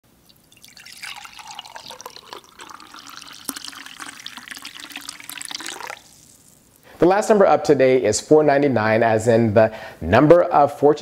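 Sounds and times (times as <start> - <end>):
liquid pouring and splashing: 0.1 - 6.8.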